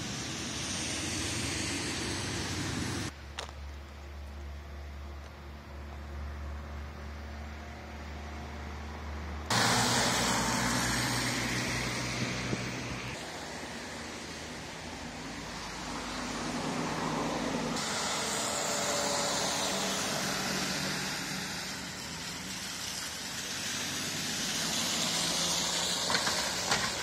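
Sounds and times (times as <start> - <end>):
car tyres hissing through slush: 0.0 - 3.2, 9.5 - 27.0.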